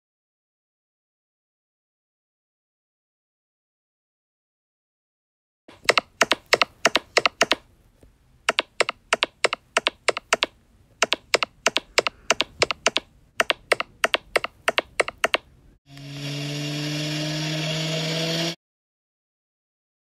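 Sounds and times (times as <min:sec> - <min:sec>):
hard-soled footsteps: 0:05.7 - 0:15.5.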